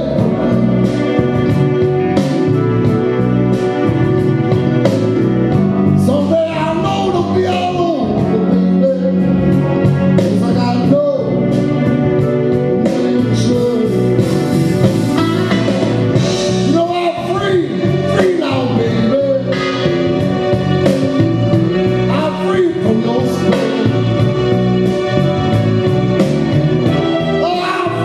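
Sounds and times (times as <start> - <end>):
man singing into microphone: 0.0 - 1.2, 6.0 - 9.6, 10.2 - 11.6, 12.7 - 14.6, 16.6 - 20.0, 22.1 - 24.2, 27.4 - 28.0
blues backing track with guitar: 0.0 - 28.0.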